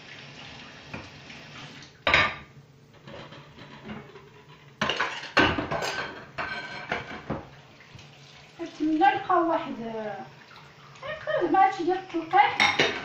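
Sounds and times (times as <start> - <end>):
dishes clattering in a sink: 0.9 - 1.2, 2.0 - 7.6, 12.3 - 13.0.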